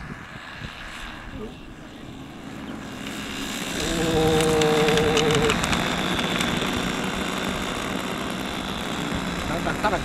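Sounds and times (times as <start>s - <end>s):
model plane propellers humming: 0.0s - 10.0s
sharp clicks: 4.1s - 6.8s.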